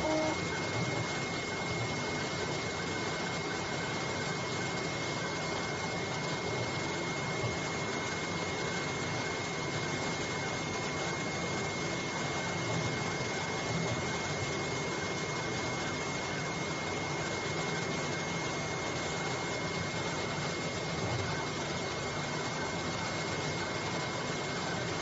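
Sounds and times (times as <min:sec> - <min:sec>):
high whine: 0:00.0 - 0:00.5
cutting machine whirring: 0:00.0 - 0:04.1.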